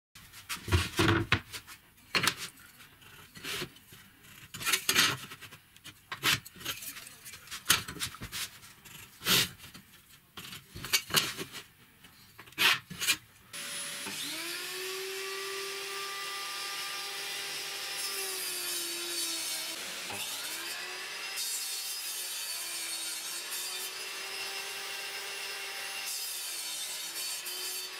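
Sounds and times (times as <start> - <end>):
table saw cutting plywood: 13.6 - 27.9.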